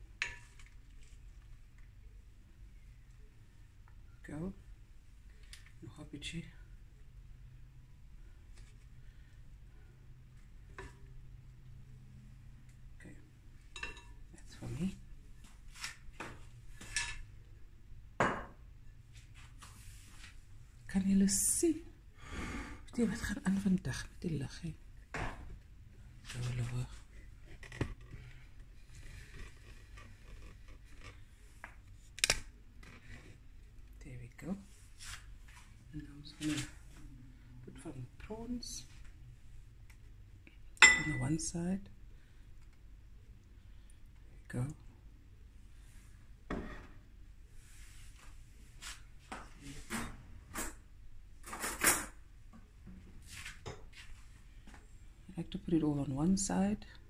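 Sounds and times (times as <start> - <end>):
faint rubbing and scraping: 26.2 - 32.0.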